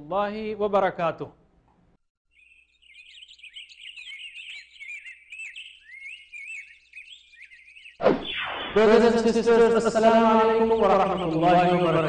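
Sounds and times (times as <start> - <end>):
small birds chirping: 2.3 - 8.0, 9.3 - 12.0
loud downward swoosh: 8.0 - 9.4
steady pitched tone: 8.0 - 12.0.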